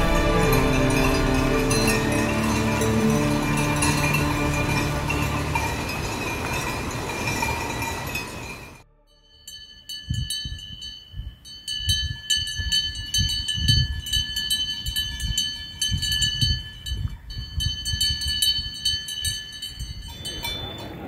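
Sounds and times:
low rumble: 0.0 - 8.1
cowbells clanking: 0.0 - 21.0.

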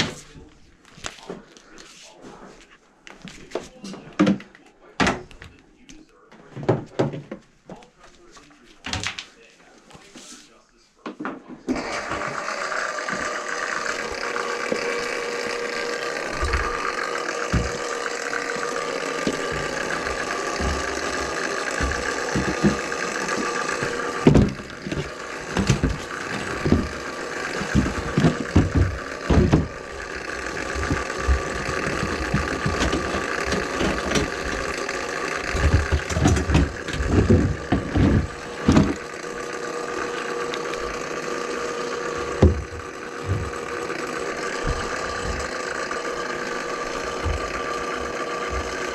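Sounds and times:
drain-cleaning machine humming: 11.7 - 48.9
knocks and rattles: 13.0 - 39.2, 42.1 - 46.0, 46.6 - 48.9.

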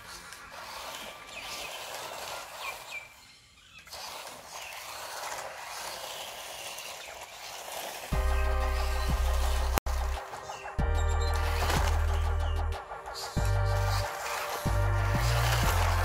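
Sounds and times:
loud music with heavy bass beat: 8.2 - 16.0.

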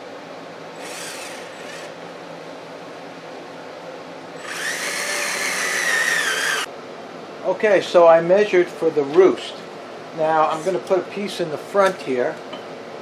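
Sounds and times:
cordless drill motor whine: 0.8 - 2.0, 4.4 - 6.7.

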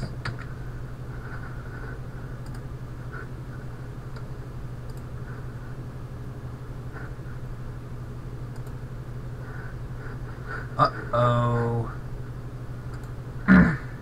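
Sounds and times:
low background hum: 0.0 - 14.0
faint computer clicks: 2.4 - 2.7, 4.1 - 5.1, 8.5 - 8.8, 12.9 - 13.2.

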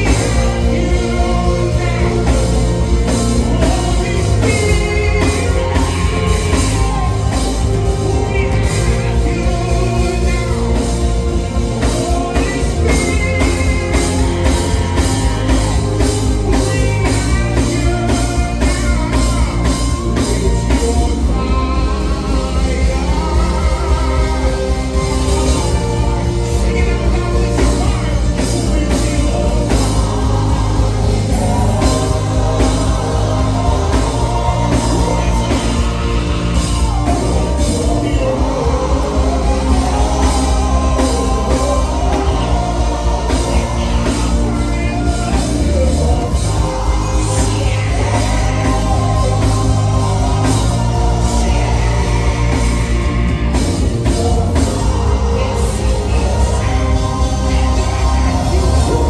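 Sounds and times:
backing vocalists singing: 0.0 - 59.0
band with heavy bass: 0.0 - 59.0
man singing lead vocals: 0.0 - 59.0.

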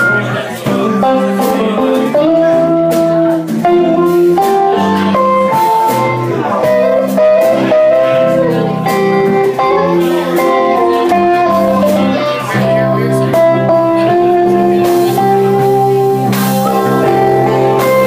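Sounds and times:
blues band playing: 0.0 - 18.0
electric guitar melody: 0.0 - 18.0.

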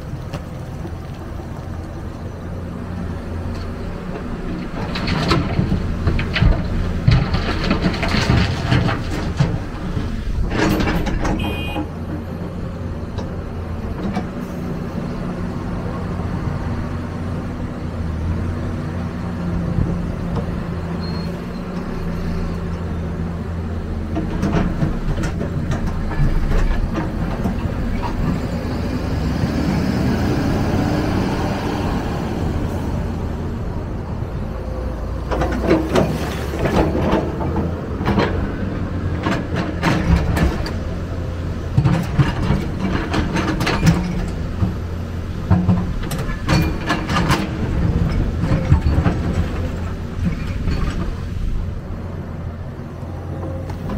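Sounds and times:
excavator diesel engine running: 0.0 - 53.9
soil and stones clattering: 3.4 - 11.7, 24.1 - 29.5, 35.2 - 51.8.

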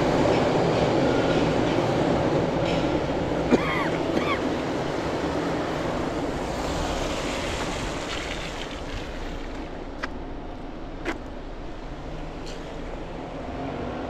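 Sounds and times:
traffic hiss on wet road: 4.6 - 10.0.

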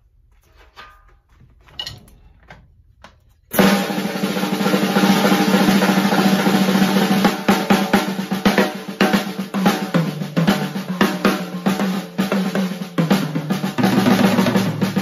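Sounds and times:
snare drum roll: 3.5 - 15.0.

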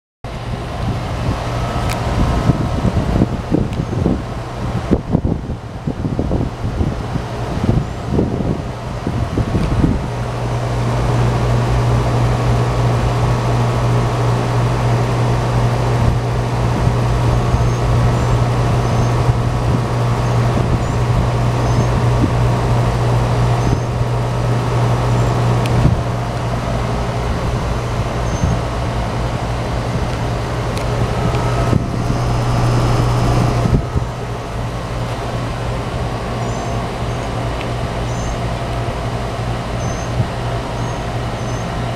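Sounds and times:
condenser fan rushing: 0.2 - 41.9
air conditioner unit hum: 0.3 - 41.9.

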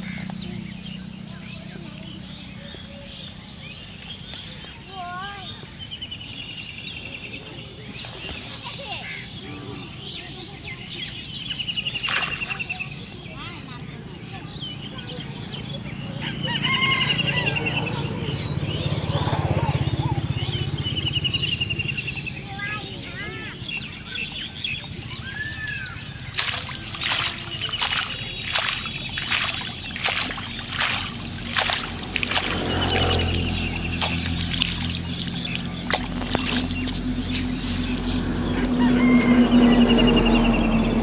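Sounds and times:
birds chirping and trilling: 0.0 - 41.0
fish splashing in water: 11.8 - 12.9, 25.0 - 39.1.

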